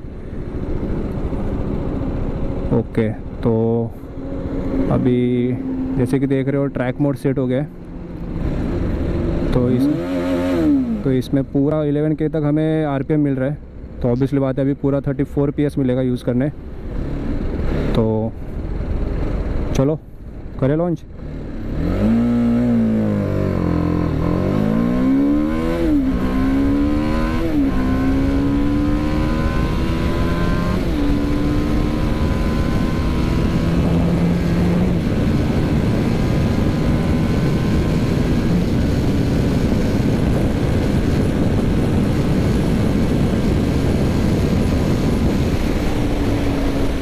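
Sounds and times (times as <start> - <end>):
motorcycle engine accelerating: 0.0 - 7.0, 7.7 - 11.6, 21.2 - 47.0
wind noise: 24.2 - 47.0.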